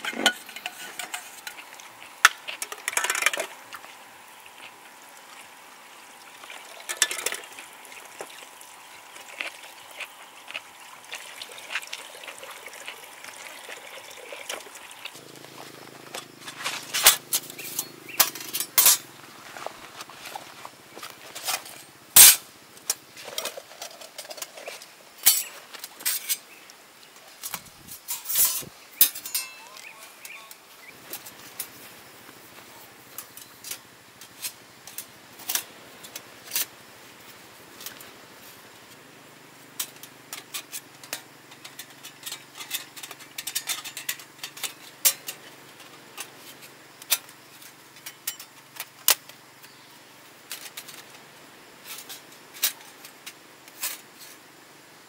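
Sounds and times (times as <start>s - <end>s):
metal panels clinking: 15.8s - 19.2s, 28.0s - 30.6s.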